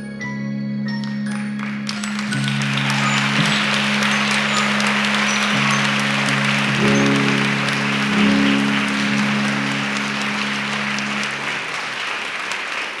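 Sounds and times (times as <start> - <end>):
audience applauding: 1.5 - 13.0
held musical chord: 2.5 - 12.2.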